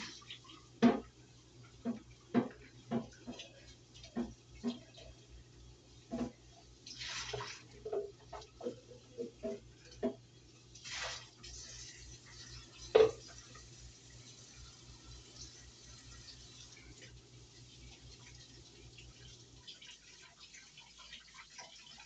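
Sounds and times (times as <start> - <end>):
dishes and utensils knocking: 7.8 - 10.2, 12.9 - 13.3.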